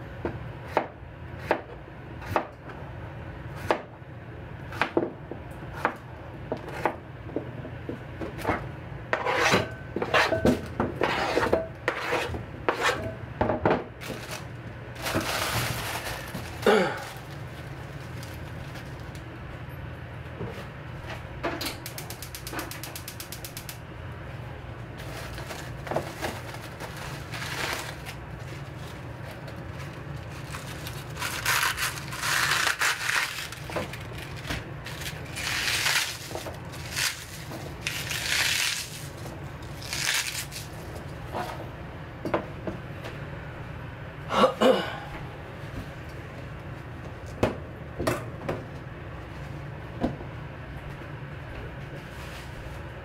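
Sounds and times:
steady low hum: 0:00.0 - 0:53.0
cabbage leaves rustling and crunching: 0:14.0 - 0:19.1, 0:25.0 - 0:39.2, 0:39.8 - 0:40.8.

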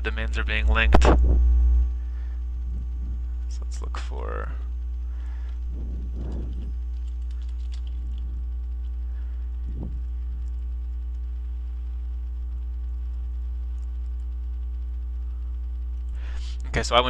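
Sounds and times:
electrical mains hum: 0:00.0 - 0:17.0
faint keyboard clicks: 0:06.2 - 0:09.0.

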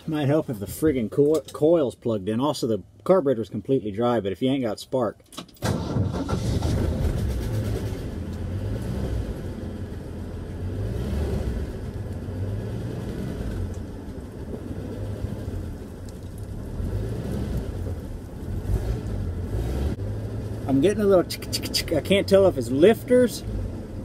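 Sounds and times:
truck engine running: 0:06.1 - 0:24.0.

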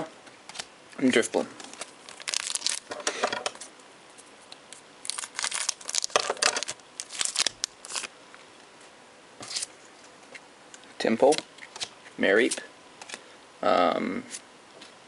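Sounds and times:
foil wrapper crinkling: 0:01.6 - 0:03.0, 0:04.7 - 0:08.1.

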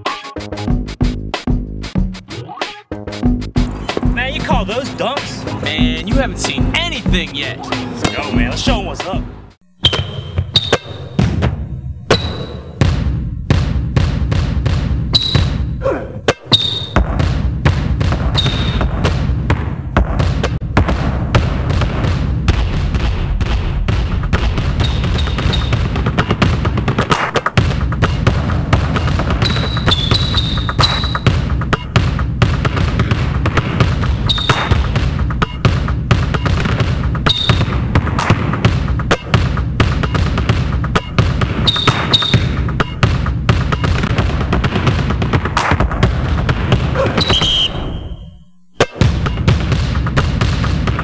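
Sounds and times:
backing beat: 0:00.0 - 0:23.0, 0:23.7 - 0:51.0
basketball bouncing on asphalt: 0:03.6 - 0:04.6, 0:09.8 - 0:48.2, 0:48.8 - 0:51.0
short high squeak: 0:09.8 - 0:11.0
short high squeaks: 0:09.8 - 0:11.0, 0:29.4 - 0:31.3, 0:37.3 - 0:37.6, 0:41.7 - 0:42.4.

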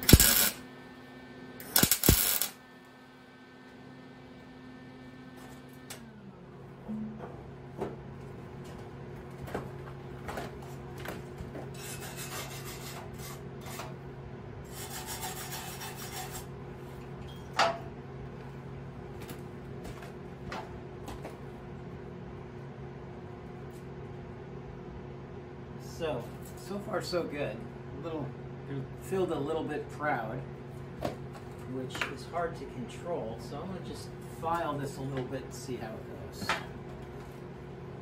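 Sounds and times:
welder arc sizzling: 0:00.0 - 0:00.6, 0:01.6 - 0:02.6
steady hum: 0:00.0 - 0:38.0.

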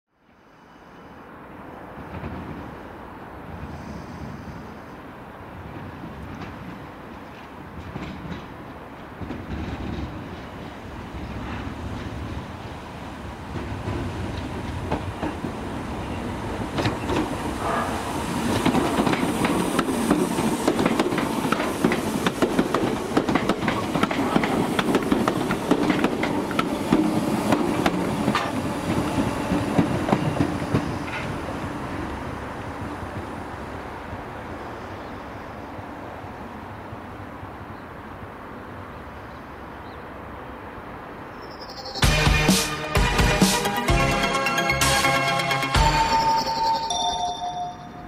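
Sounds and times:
train wheels clattering over rail joints: 0:06.2 - 0:12.2, 0:16.7 - 0:31.5.

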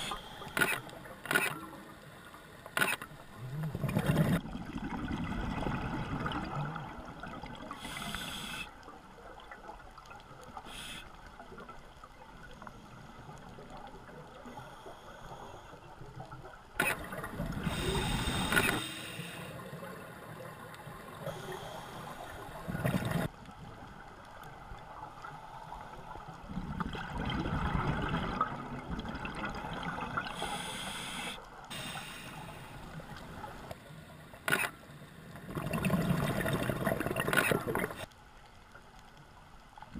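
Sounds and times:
low water noise: 0:00.0 - 0:39.9
exhaled bubbles underwater: 0:03.3 - 0:08.1, 0:22.4 - 0:23.3, 0:26.4 - 0:30.5, 0:35.4 - 0:38.1.

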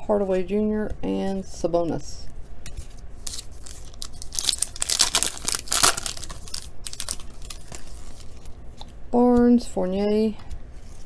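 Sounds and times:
foil wrapper tearing and crinkling: 0:03.2 - 0:08.6.

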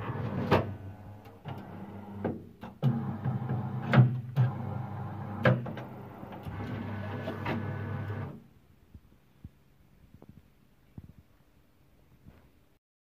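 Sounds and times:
machine motor hum: 0:01.0 - 0:08.4.

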